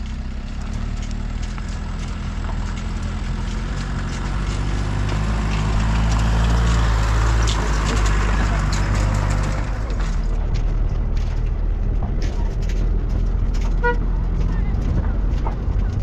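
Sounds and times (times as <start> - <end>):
pickup truck engine approaching: 0.0 - 16.0
tyres crackling on dirt: 0.0 - 16.0.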